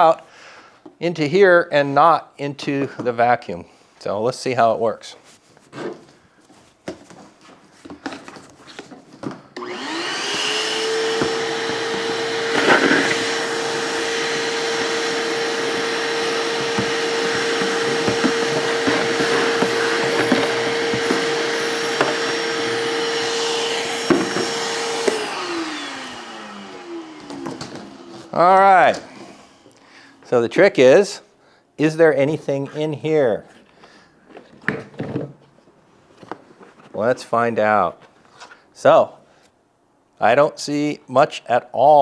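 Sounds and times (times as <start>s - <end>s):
shop vacuum whining: 8.8s - 30.4s.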